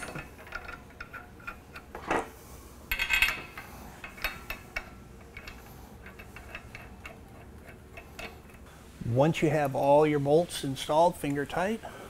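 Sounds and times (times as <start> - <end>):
metal bolts clinking: 0.0 - 2.3, 2.9 - 8.6.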